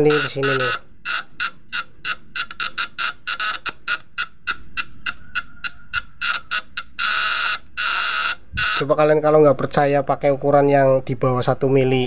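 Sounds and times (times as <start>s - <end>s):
contact breaker buzzing and crackling: 0.0s - 4.9s, 6.3s - 9.0s.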